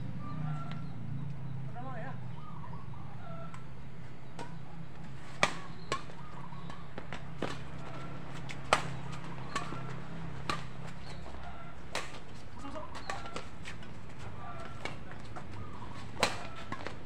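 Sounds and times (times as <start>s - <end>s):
badminton rackets hitting shuttlecock: 5.2s - 17.0s.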